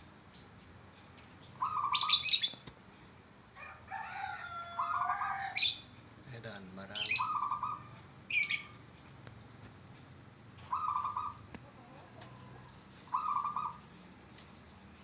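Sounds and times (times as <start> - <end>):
dove cooing: 1.6 - 2.6, 7.0 - 8.6, 10.6 - 14.0.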